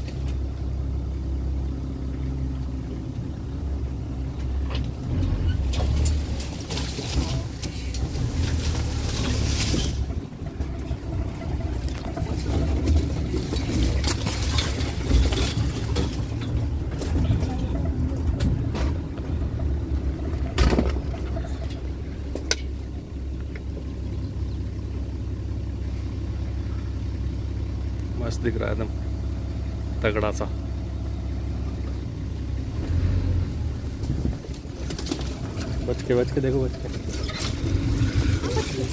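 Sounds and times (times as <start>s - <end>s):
vehicle engine humming: 0.0s - 38.9s.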